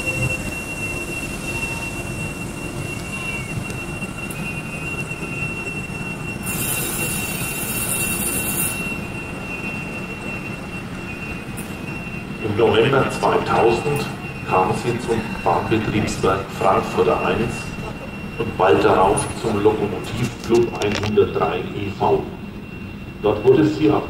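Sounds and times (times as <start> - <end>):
high-pitched wheel squeal: 0.0 - 24.0
train wheels rumbling: 0.0 - 24.0
loud high hiss: 6.4 - 8.8.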